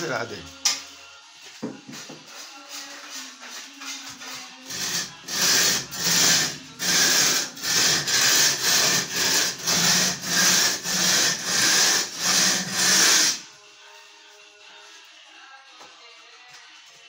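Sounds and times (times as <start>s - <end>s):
hand tool rasping: 2.5s - 13.4s.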